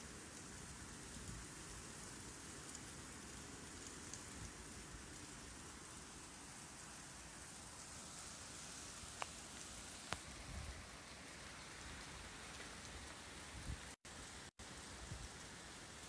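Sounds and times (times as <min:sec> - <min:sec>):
heavy rain pouring: 0:00.0 - 0:16.0.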